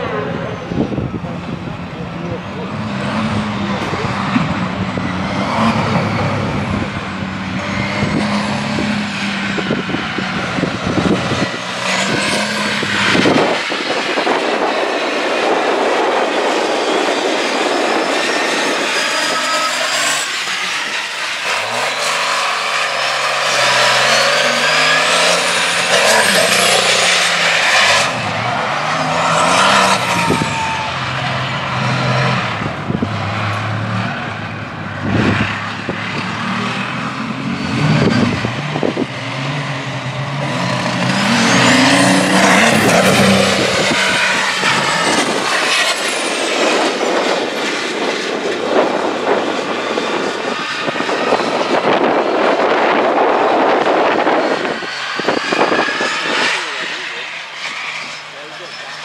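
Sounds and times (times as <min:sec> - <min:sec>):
truck engine revving: 0:00.0 - 0:59.0.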